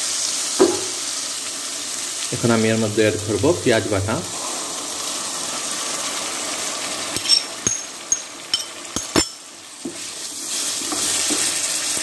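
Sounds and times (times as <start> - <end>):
onions sizzling in a pot: 0.0 - 12.0
utensils knocking against pot: 7.2 - 9.4.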